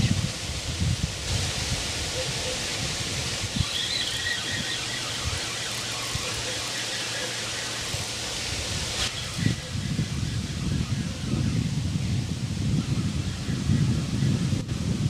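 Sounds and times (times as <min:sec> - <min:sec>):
wind on microphone: 0:00.0 - 0:15.0
faint high chirps: 0:03.5 - 0:11.8.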